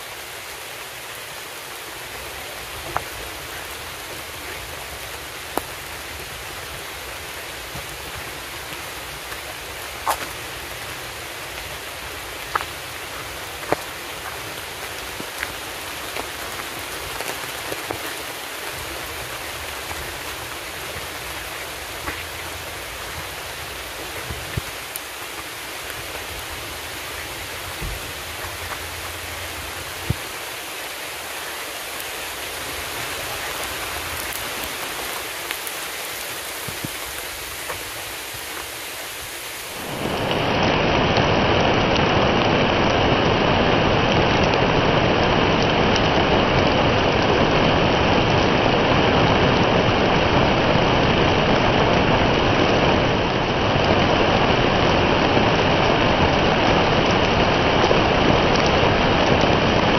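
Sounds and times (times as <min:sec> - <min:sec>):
steady rain falling: 0:00.0 - 0:59.9
sharp taps of raindrops: 0:02.2 - 0:31.0, 0:31.8 - 0:41.3, 0:56.2 - 0:59.7.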